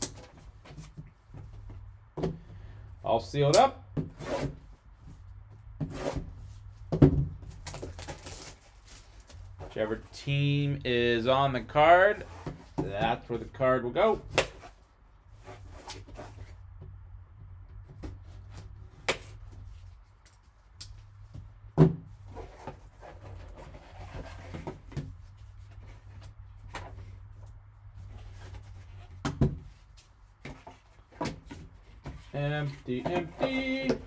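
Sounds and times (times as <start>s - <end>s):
cardboard box knocks and rustles: 6.9s - 8.2s.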